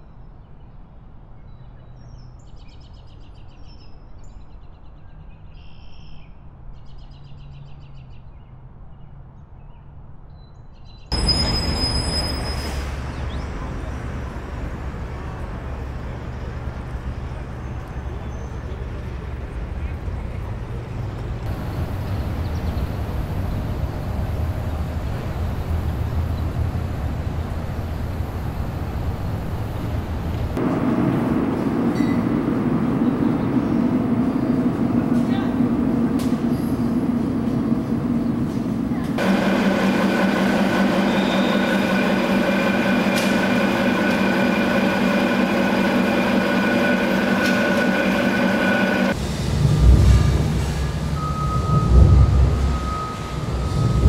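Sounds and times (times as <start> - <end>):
low rumble: 21.4 - 39.3, 49.0 - 54.0.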